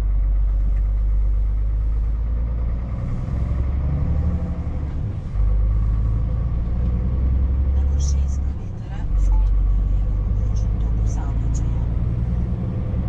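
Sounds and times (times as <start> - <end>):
diesel truck engine low revs: 0.0 - 13.0.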